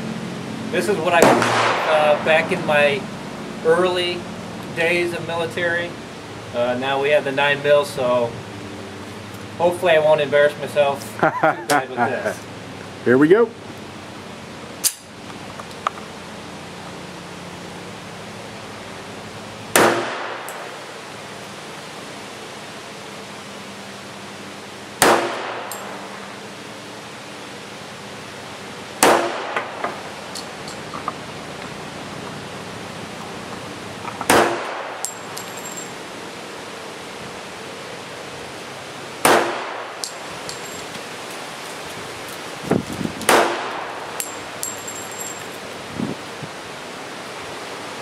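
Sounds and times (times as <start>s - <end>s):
pistol shots with echo: 1.2s - 2.2s, 19.8s - 20.6s, 25.0s - 25.8s, 29.0s - 29.8s, 34.3s - 35.1s, 39.2s - 40.0s, 43.3s - 44.0s
faint metallic clinks: 35.0s - 36.0s, 40.0s - 40.9s, 44.2s - 45.6s.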